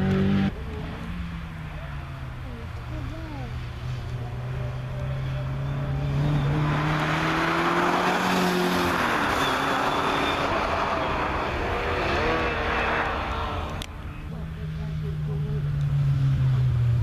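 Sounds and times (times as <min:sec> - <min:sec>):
sports car engine accelerating: 0:00.0 - 0:17.0.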